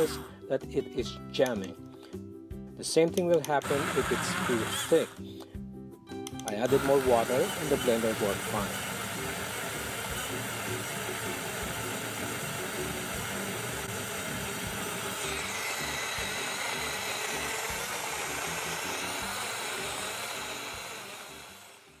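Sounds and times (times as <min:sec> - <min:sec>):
portable blender whirring: 0:03.4 - 0:05.2, 0:06.5 - 0:22.0.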